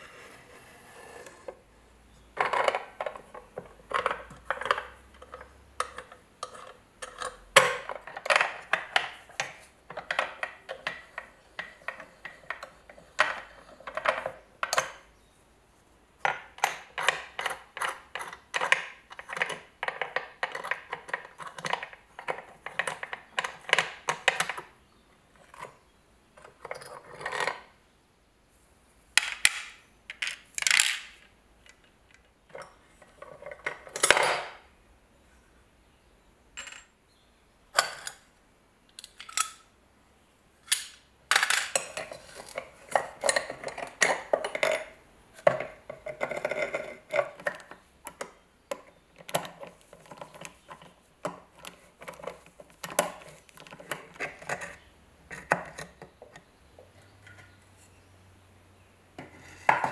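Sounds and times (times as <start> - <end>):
small metal parts clinking: 36.6 - 37.0, 39.0 - 39.7.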